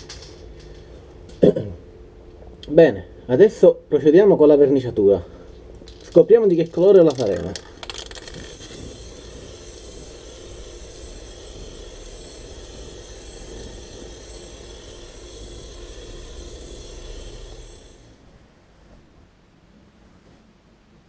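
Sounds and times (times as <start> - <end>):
aerosol spray can hissing: 6.8 - 18.2.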